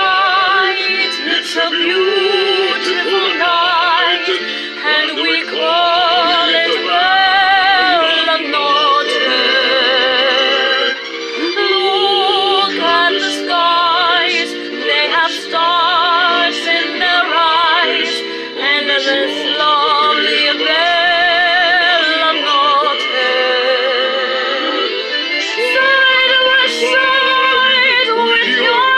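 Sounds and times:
recorded backing music: 0:00.0 - 0:28.9
woman singing a slow ballad: 0:25.6 - 0:28.9.

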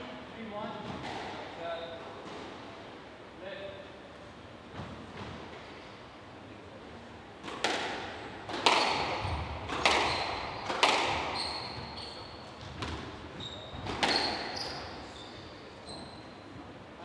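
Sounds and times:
squash ball smacks: 0:07.4 - 0:11.4
shoe squeaks on wooden floor: 0:09.9 - 0:16.5.

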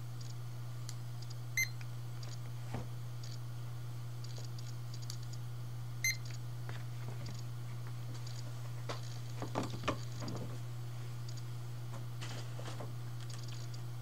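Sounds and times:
low electrical hum: 0:00.0 - 0:14.0
barcode scanner beeping: 0:01.6 - 0:01.8, 0:06.0 - 0:06.4.

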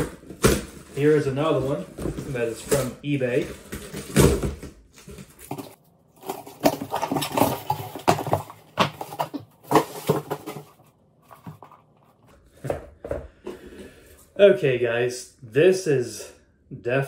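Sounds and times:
cardboard and paper rustling: 0:00.0 - 0:13.2.

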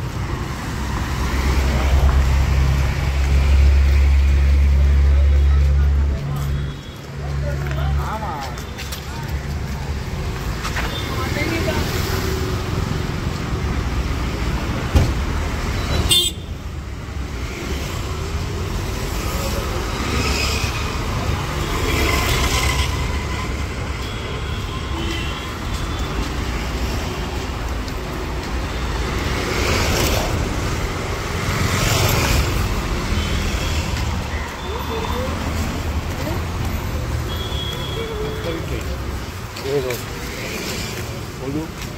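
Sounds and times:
traffic engines passing: 0:00.0 - 0:41.9
horns honking: 0:15.9 - 0:16.6, 0:37.2 - 0:38.8.

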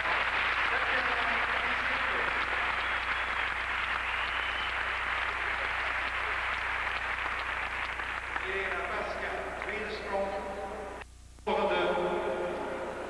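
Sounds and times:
crowd clapping: 0:00.0 - 0:10.4
steady low hum: 0:00.0 - 0:13.0.

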